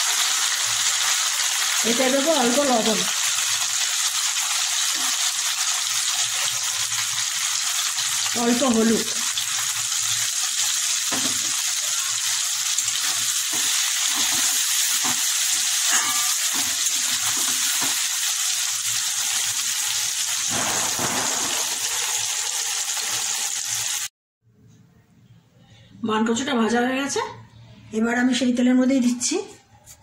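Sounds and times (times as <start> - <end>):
food sizzling in hot oil: 0.0 - 24.1.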